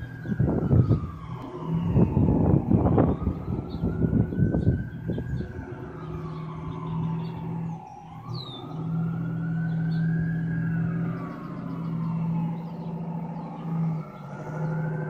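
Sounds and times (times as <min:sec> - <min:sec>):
siren wailing: 0:00.0 - 0:15.0
steady low hum: 0:00.0 - 0:15.0
vehicle rumble: 0:00.0 - 0:15.0.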